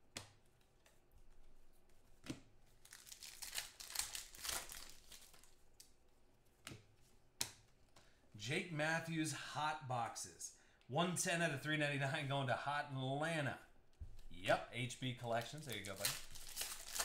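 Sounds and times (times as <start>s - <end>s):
wrapper tearing and crinkling: 2.8s - 5.6s, 15.3s - 17.0s.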